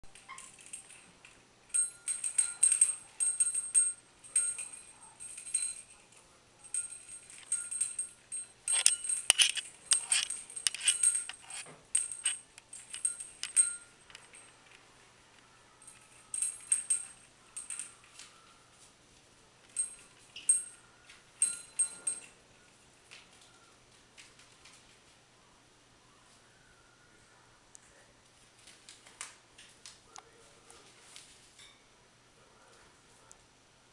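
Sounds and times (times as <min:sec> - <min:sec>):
small metal bell jingling: 0:00.2 - 0:01.1, 0:01.7 - 0:14.6, 0:15.8 - 0:18.2, 0:19.7 - 0:22.4.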